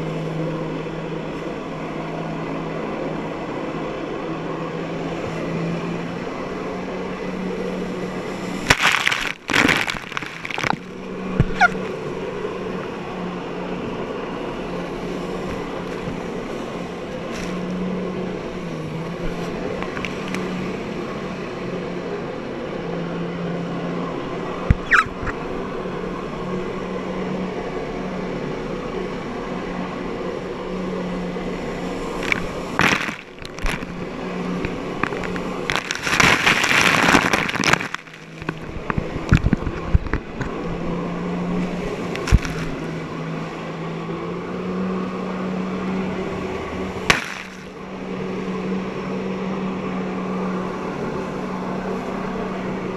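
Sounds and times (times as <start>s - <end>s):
jet ski engine droning: 0.0s - 52.9s
spray crashing over craft: 47.1s - 47.7s.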